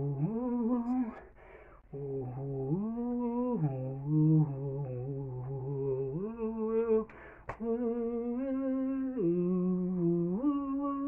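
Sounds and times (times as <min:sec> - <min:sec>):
man singing wordless notes: 0:00.0 - 0:11.0
man breathing in: 0:01.2 - 0:01.9, 0:07.1 - 0:07.5.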